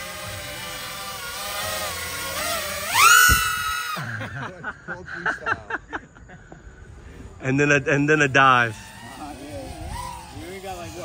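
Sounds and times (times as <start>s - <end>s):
drone motors whining: 0.0s - 4.4s, 6.6s - 11.0s.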